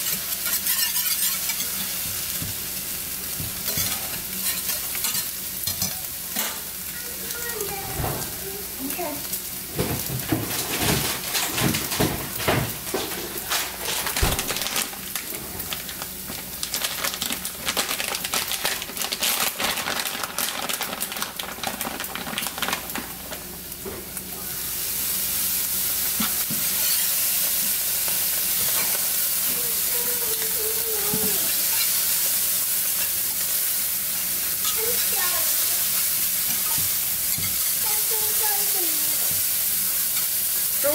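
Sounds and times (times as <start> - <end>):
utensil scraping a pan: 0.0 - 2.0
eggs sizzling in a frying pan: 0.0 - 40.9.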